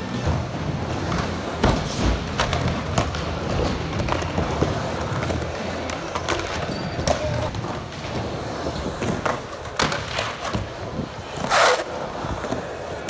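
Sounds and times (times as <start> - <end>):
skateboard rolling rumble: 7.3 - 13.0.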